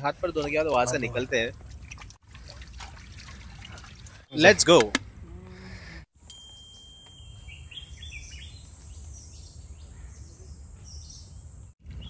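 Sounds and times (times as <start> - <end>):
bird chirps: 7.0 - 12.0.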